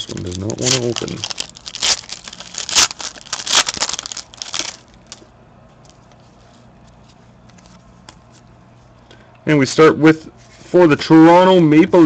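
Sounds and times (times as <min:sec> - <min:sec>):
foil wrapper tearing and crinkling: 0:00.0 - 0:05.2
cards rustling and ticking: 0:00.0 - 0:08.5.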